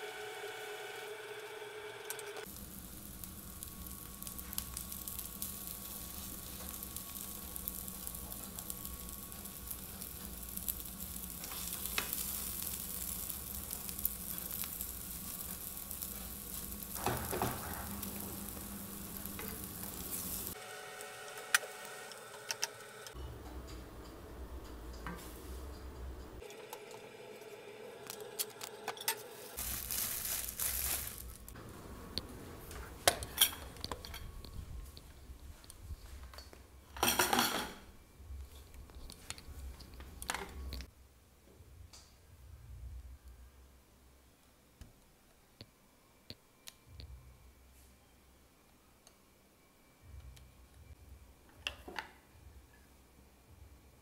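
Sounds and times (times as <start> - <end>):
eggs sizzling in frying pan: 0.0 - 23.1, 29.4 - 31.6.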